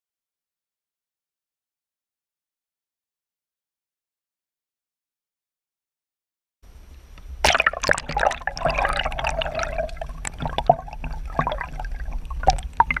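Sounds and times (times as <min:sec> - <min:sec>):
low underwater rumble: 0:06.8 - 0:13.0
water splashing and gurgling: 0:07.3 - 0:13.0.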